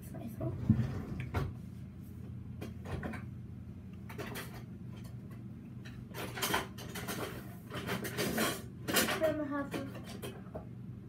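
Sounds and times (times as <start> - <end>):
steady low hum: 0.0 - 11.0
kitchen knocks and clatters: 2.6 - 3.3, 4.1 - 10.7.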